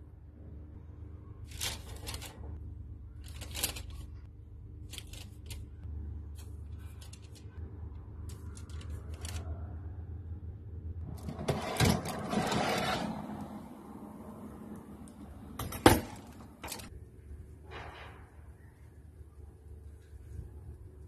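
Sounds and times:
baking tray scraping: 11.0 - 13.6.

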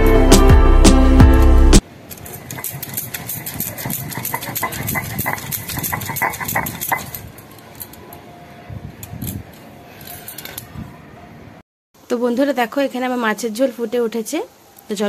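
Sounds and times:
stone grinding clicks and scrapes: 2.1 - 8.0.

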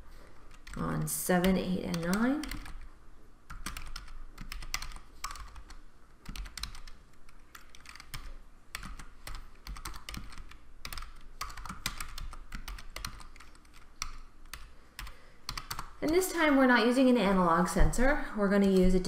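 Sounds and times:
computer keyboard typing: 0.3 - 2.9, 3.5 - 16.5.

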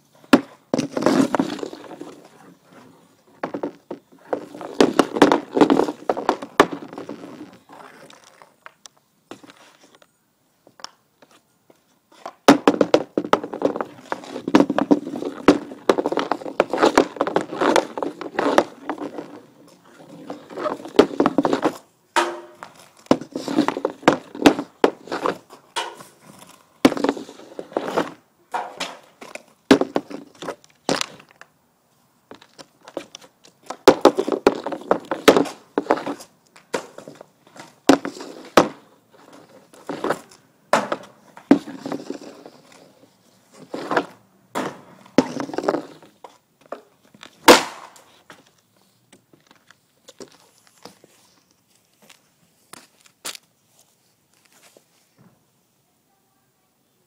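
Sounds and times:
hockey stick clacking puck: 3.4 - 7.2, 12.6 - 19.5, 20.1 - 26.2, 32.4 - 42.9
sharp cracks of shots: 47.5 - 47.9.

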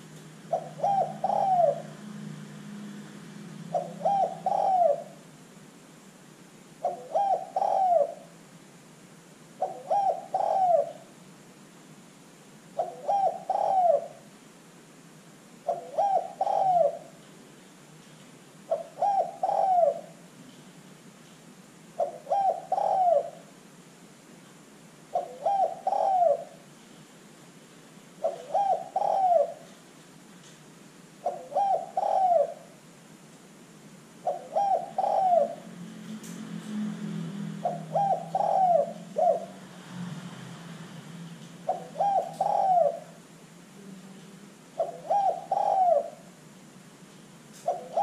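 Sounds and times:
dove cooing: 0.0 - 2.4, 3.6 - 5.3, 6.8 - 8.4, 9.6 - 11.1, 12.8 - 14.3, 15.6 - 17.2, 18.7 - 20.3, 22.0 - 23.5, 25.1 - 26.7, 28.2 - 29.7, 31.2 - 32.8, 34.2 - 35.8, 37.5 - 39.7, 41.6 - 43.3, 44.7 - 46.4, 47.6 - 48.0.

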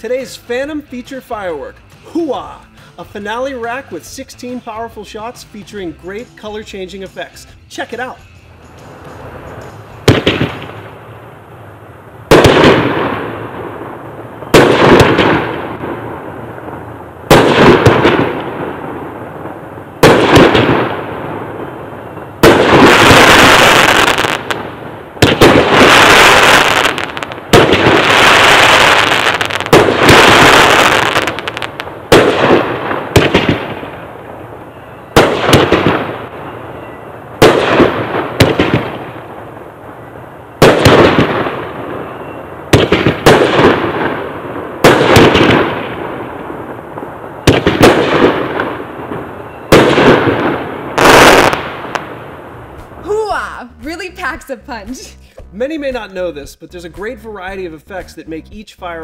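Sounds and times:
firework aerial bursts: 8.7 - 21.7, 22.4 - 34.3, 42.7 - 46.7, 47.4 - 56.2
firework launch thumps: 9.0 - 10.8.

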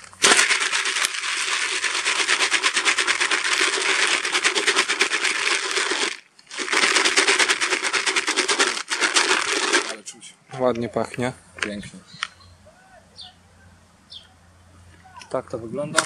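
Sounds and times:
bait rattling in plastic bucket: 0.0 - 10.0.

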